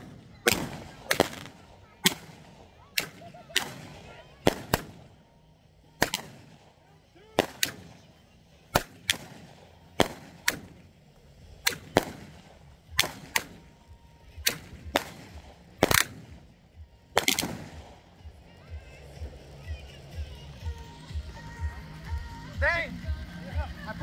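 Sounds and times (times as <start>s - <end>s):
fireworks bangs: 0.0s - 5.2s, 5.9s - 11.0s, 11.6s - 16.5s, 17.1s - 18.2s.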